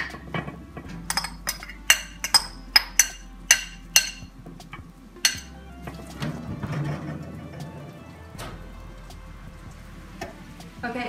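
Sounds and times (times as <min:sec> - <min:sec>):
metal spoon clinking ceramic bowls: 0:01.1 - 0:04.3, 0:05.2 - 0:05.5.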